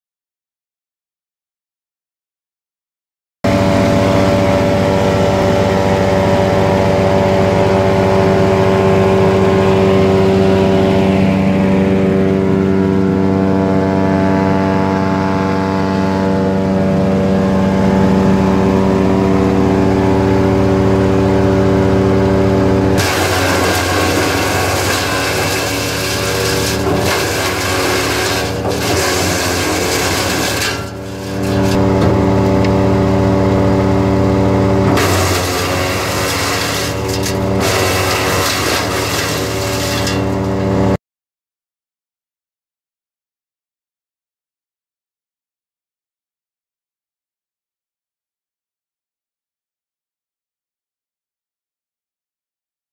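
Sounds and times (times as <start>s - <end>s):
tractor engine running: 3.5s - 41.0s.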